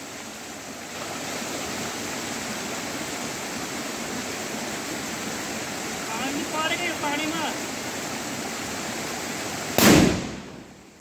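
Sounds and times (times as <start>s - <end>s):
rocky stream rushing: 0.0s - 11.0s
firecracker fizzing: 8.8s - 10.8s.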